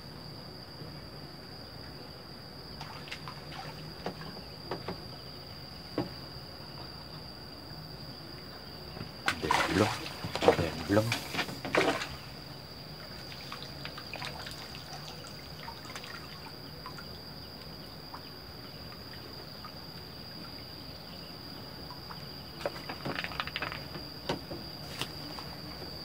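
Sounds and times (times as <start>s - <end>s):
small splashes and knocks: 2.8s - 5.2s, 5.9s - 6.9s, 8.4s - 19.8s, 21.9s - 25.9s
water trickling and dripping: 8.3s - 23.8s.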